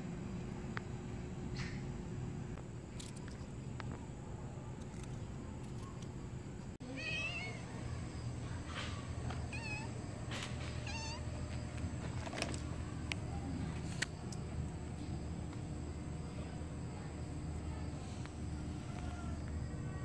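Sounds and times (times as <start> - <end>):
steady low hum: 0.0 - 20.0
cat meowing: 9.5 - 9.9, 10.8 - 11.3.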